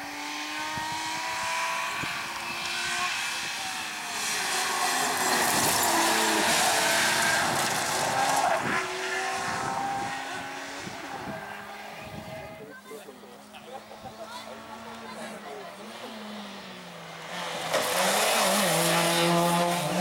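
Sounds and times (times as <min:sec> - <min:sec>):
rally car engine revving: 0:00.0 - 0:20.0
tyres on gravel: 0:17.2 - 0:20.0.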